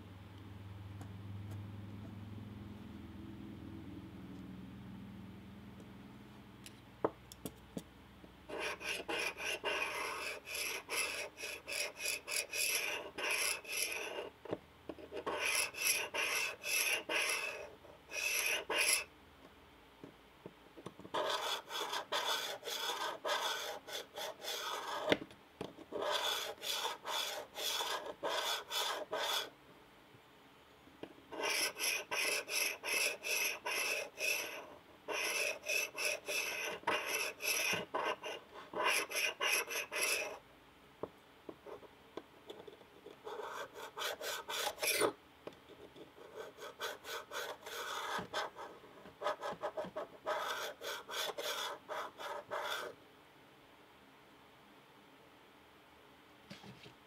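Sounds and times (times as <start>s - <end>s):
file strokes on steel: 8.5s - 14.3s, 15.2s - 19.1s, 26.0s - 29.5s, 31.4s - 40.4s, 43.6s - 45.1s.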